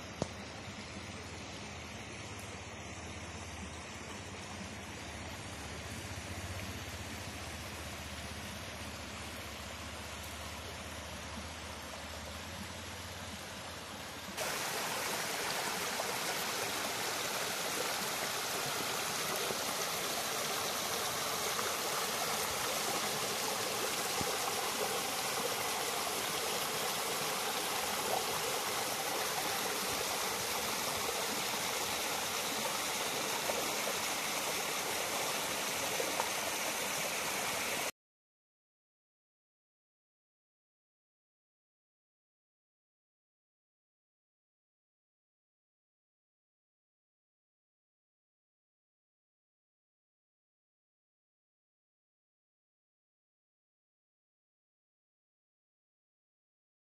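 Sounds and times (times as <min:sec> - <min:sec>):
stream flowing over stones: 0:00.0 - 0:37.9.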